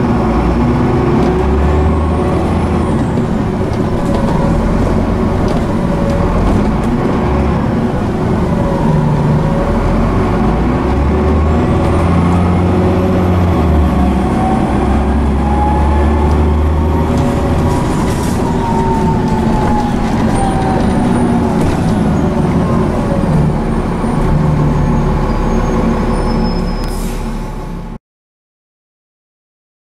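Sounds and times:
bus engine rumble: 0.0s - 28.0s.

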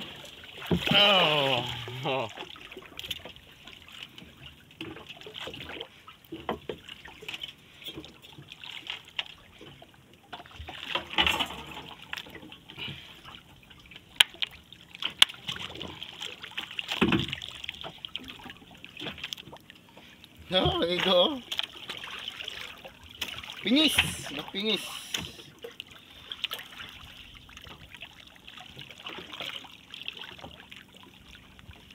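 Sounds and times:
sea water sloshing around boat: 0.0s - 31.9s
sharp knocks on boat: 0.6s - 1.1s, 17.0s - 17.4s.

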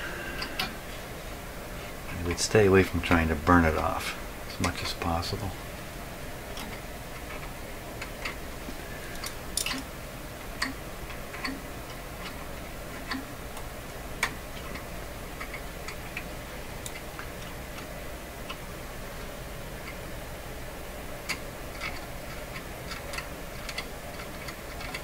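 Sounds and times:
faint low hum: 0.0s - 25.0s
light clicks and scrapes on wire: 21.2s - 25.0s.

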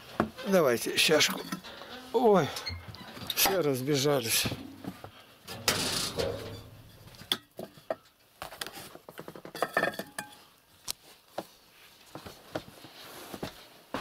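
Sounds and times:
dishes clinking and knocking: 4.5s - 8.0s, 9.3s - 10.4s.

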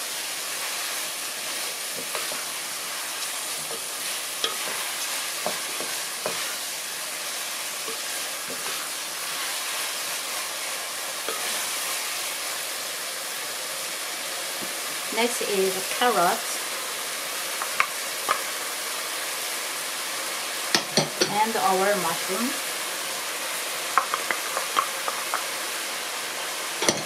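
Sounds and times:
rice and beef sizzling in pot: 0.0s - 27.0s
spatula scraping and tapping pot: 3.5s - 6.6s, 24.0s - 25.5s.

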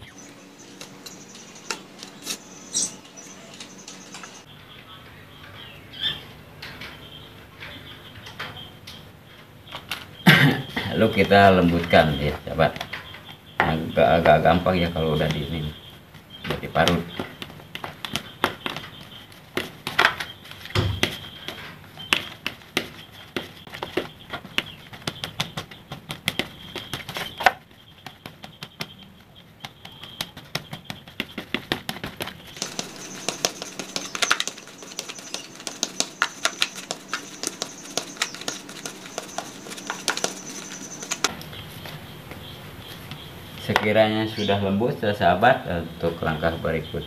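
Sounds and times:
scraping in bowl: 32.6s - 41.3s.

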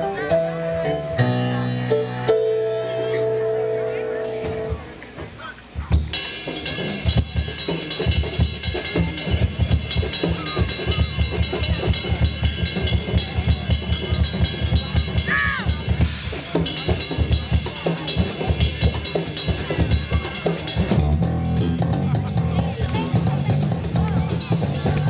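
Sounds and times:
drum kit: 0.0s - 25.0s
ringing cymbals: 6.1s - 21.8s
low bass line: 20.9s - 25.0s.

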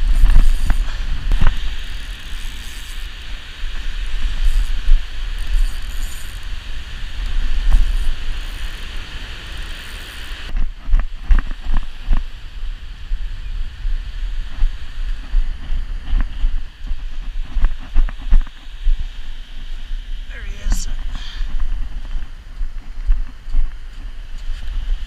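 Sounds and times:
even hiss: 18.5s - 21.8s
wind buffeting microphone: 20.9s - 25.0s.

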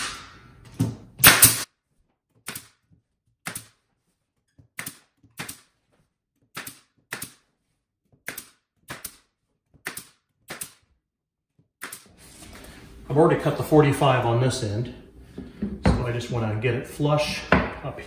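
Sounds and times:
pneumatic nail gun firing: 1.2s - 1.7s, 11.8s - 12.1s.

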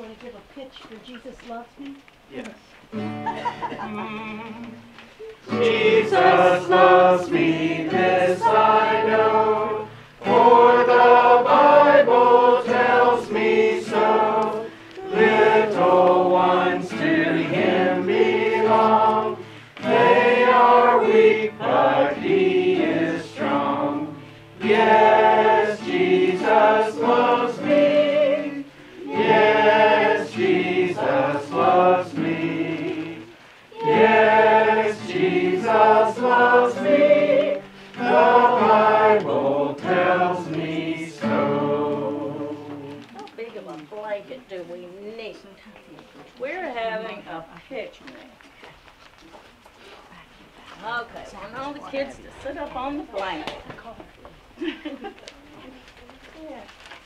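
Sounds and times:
congregation singing: 3.3s - 43.2s.

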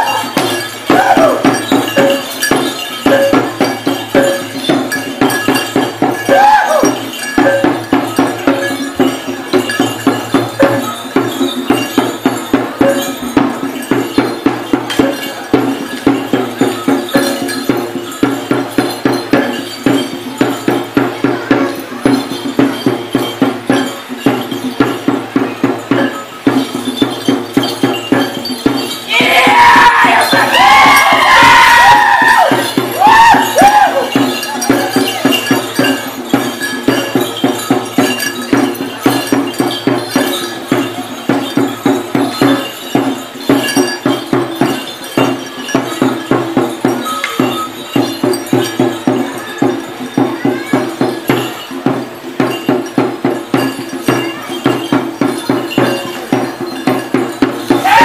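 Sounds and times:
drum beaten fast: 0.0s - 58.0s
person shouting: 0.9s - 1.5s, 6.3s - 7.0s, 29.1s - 34.1s.

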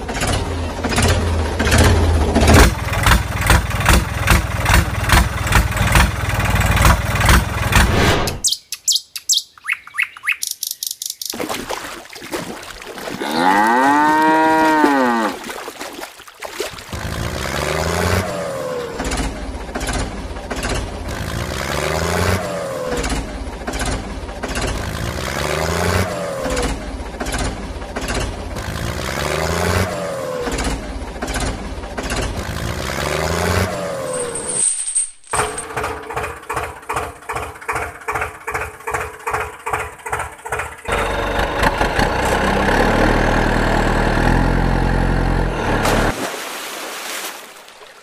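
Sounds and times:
tractor engine running: 0.0s - 11.3s, 16.7s - 46.1s
cow mooing: 13.1s - 15.5s.

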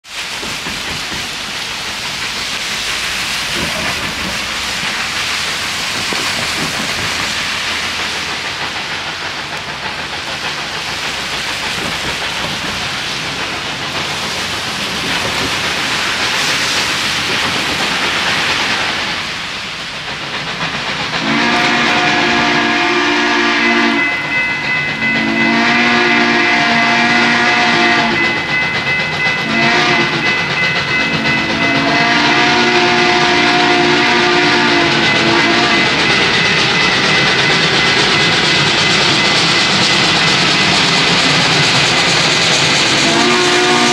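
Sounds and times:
steady rushing hiss: 0.0s - 43.9s
steam whistle blasts: 21.2s - 24.4s, 25.0s - 28.4s, 29.4s - 30.2s, 31.0s - 36.0s, 42.9s - 43.9s.

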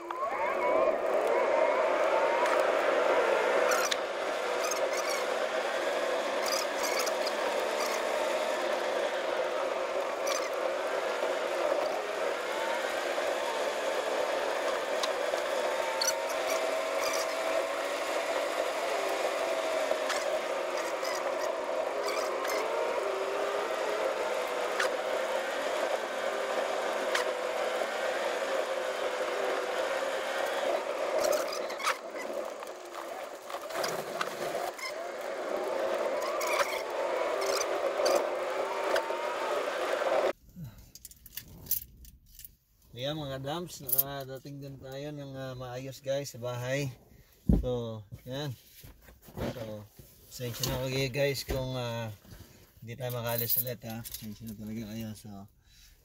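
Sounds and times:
blizzard wind howling: 0.0s - 40.4s.

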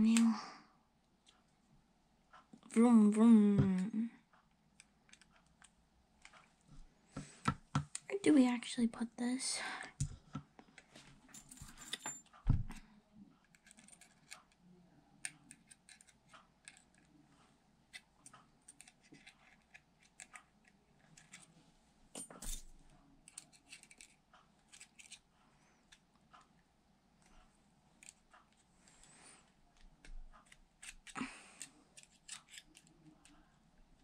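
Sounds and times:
small metal parts clinking: 11.4s - 12.4s.

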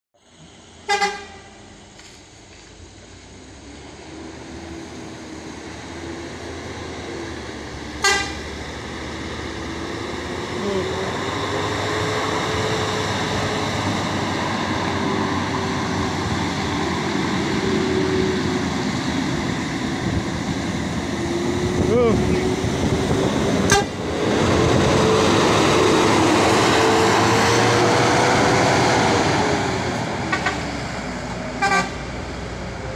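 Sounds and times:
bus engine climbing: 0.2s - 32.9s
bus horn toot: 0.8s - 1.6s, 8.0s - 8.5s, 23.6s - 24.0s, 30.3s - 30.7s, 31.6s - 32.0s.

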